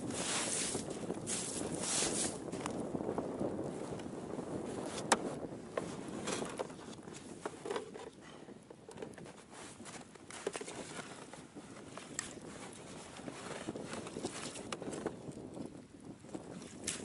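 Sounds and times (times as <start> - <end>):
light clicks and knocks of gear: 5.0 - 11.4.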